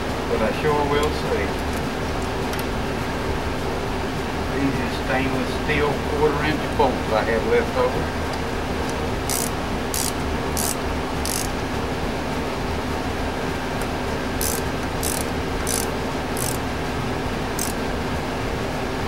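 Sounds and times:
steady background hum: 0:00.0 - 0:19.0
ratchet wrench clicking: 0:09.3 - 0:11.6, 0:14.4 - 0:16.6, 0:17.6 - 0:17.8.

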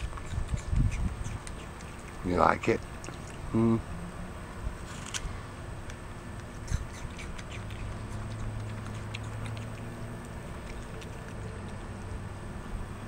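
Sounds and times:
monkey chewing an apple: 0:00.0 - 0:03.5, 0:06.2 - 0:13.0
steady low hum: 0:00.0 - 0:13.0.

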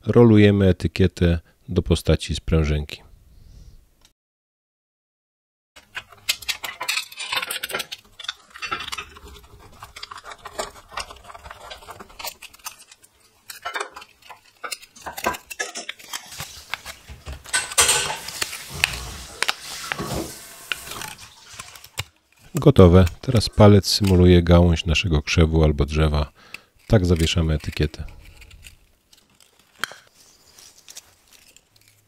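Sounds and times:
sheet metal crinkling and clicking: 0:05.8 - 0:24.3.

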